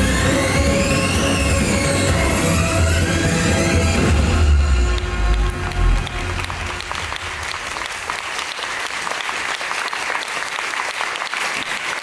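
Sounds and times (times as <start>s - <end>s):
stage music: 0.0s - 10.2s
audience applauding: 4.8s - 12.0s.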